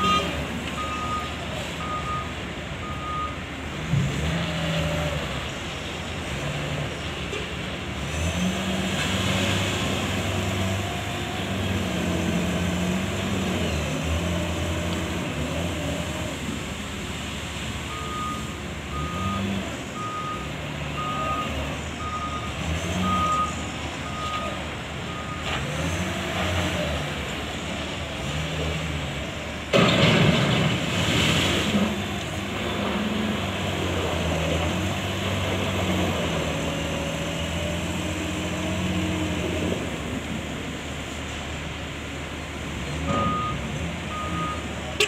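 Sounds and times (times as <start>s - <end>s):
heavy vehicle engine revving: 7.9s - 18.3s, 18.9s - 41.0s.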